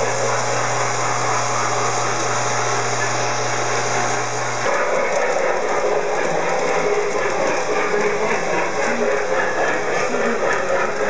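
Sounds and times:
model train motor whirring: 0:00.0 - 0:11.0.

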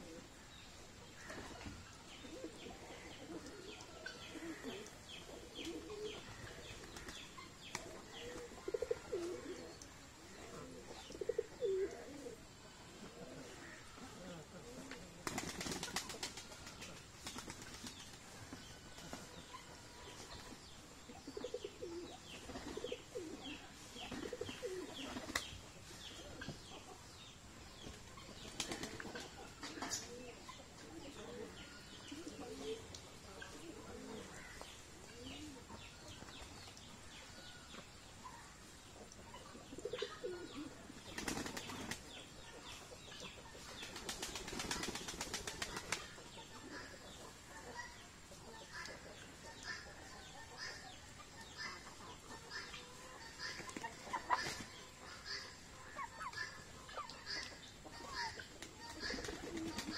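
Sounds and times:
pigeons cooing: 0:02.2 - 0:07.1, 0:07.9 - 0:09.8, 0:10.4 - 0:15.8, 0:21.3 - 0:25.1, 0:39.5 - 0:42.0, 0:58.1 - 0:59.9
wings flapping: 0:15.2 - 0:18.2, 0:41.1 - 0:42.0, 0:43.8 - 0:46.1.

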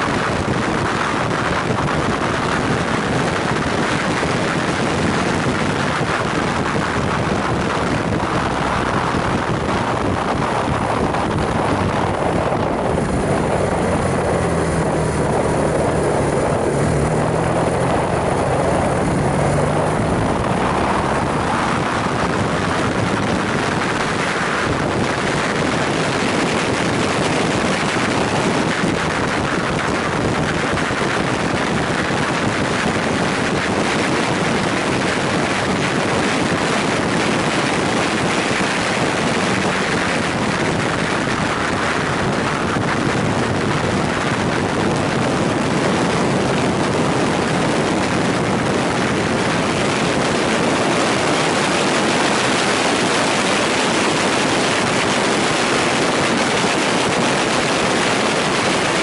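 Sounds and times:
motorcycle engine running: 0:00.0 - 0:59.0
wind rush over microphone: 0:00.0 - 0:59.0.

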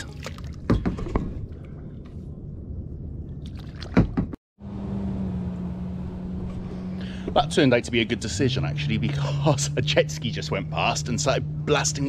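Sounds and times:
distant jet ski engine: 0:04.6 - 0:12.0.

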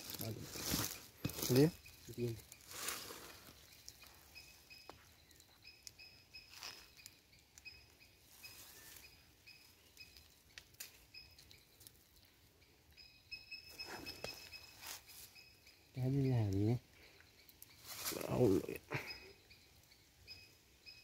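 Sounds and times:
soft rustles: 0:00.0 - 0:04.4, 0:17.8 - 0:18.3
faint high chirping: 0:00.0 - 0:21.0.

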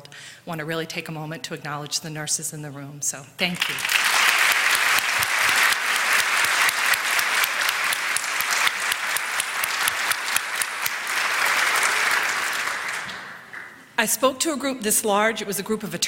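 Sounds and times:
large audience applauding: 0:03.6 - 0:13.8.

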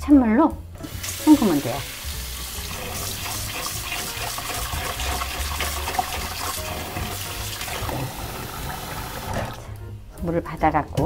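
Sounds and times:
tap water running into bowl: 0:00.8 - 0:09.6.

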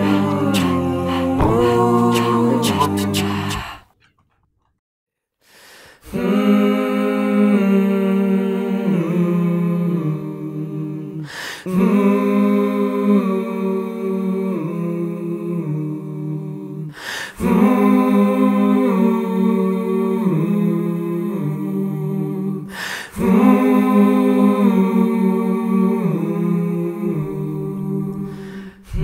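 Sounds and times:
person humming long notes: 0:00.0 - 0:03.9.

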